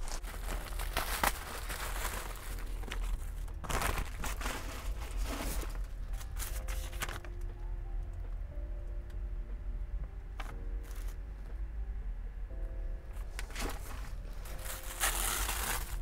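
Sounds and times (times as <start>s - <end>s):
plastic and paper crinkling: 0.0s - 7.4s, 13.4s - 16.0s.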